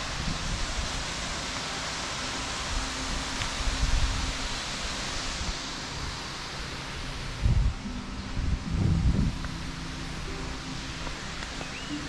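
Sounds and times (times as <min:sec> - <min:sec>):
waterfall rushing: 0:00.0 - 0:12.0
low rumble: 0:07.4 - 0:11.4.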